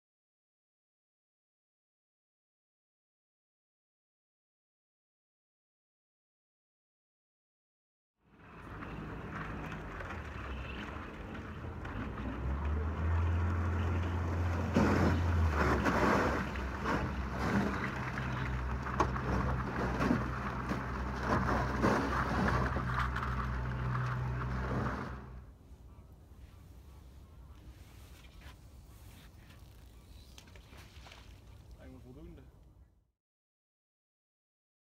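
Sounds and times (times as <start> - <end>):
boat motor humming: 8.3 - 32.9
ice crackling and crunching: 8.4 - 25.4.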